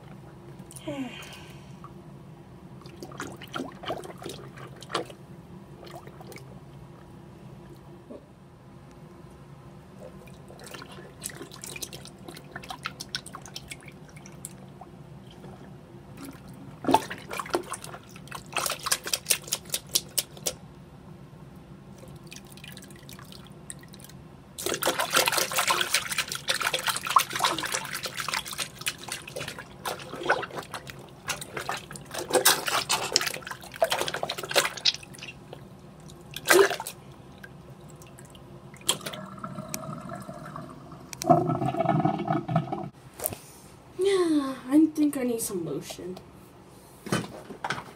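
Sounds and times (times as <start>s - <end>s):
water splashing in sink: 2.8s - 5.2s, 10.2s - 14.6s, 16.2s - 20.6s, 22.0s - 43.0s.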